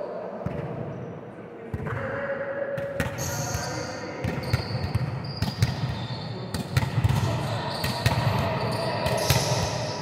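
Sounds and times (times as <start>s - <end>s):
volleyballs hit and bouncing: 2.8s - 10.0s
shoe squeaks: 3.2s - 6.5s, 7.4s - 10.0s.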